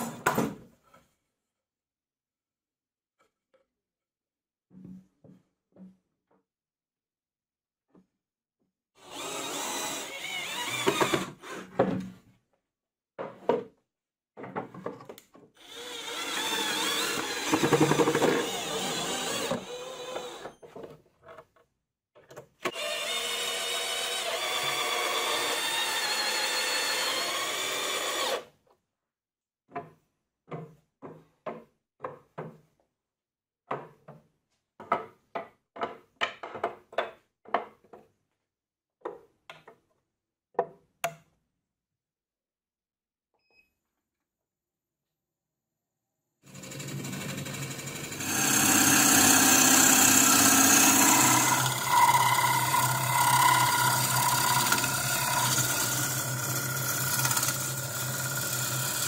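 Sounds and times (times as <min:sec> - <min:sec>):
cordless drill whining: 0:09.0 - 0:11.6, 0:15.6 - 0:20.6, 0:22.7 - 0:28.5, 0:46.5 - 0:59.0
wooden knocks and clicks: 0:34.8 - 0:38.2.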